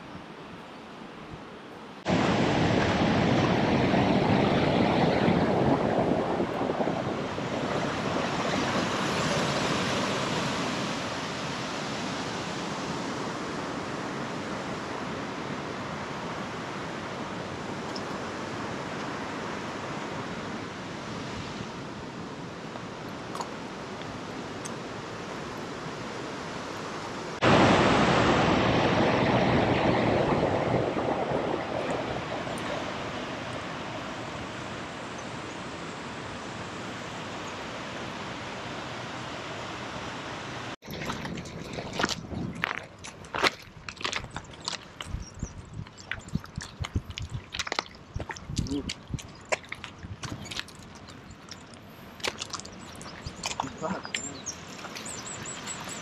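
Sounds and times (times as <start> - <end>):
river water rushing over rapids: 0.2 - 45.0.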